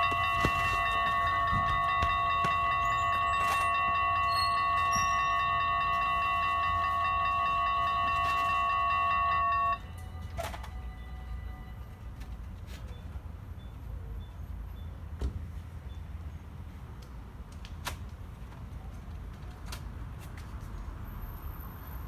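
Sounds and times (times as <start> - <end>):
level crossing bells ringing: 0.0 - 12.3
low traffic: 0.0 - 22.0.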